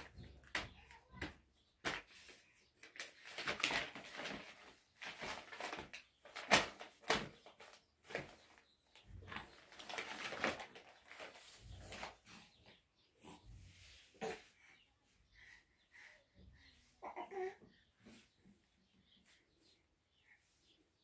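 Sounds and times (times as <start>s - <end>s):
plastic bag crinkling: 2.8s - 8.6s, 9.2s - 12.2s.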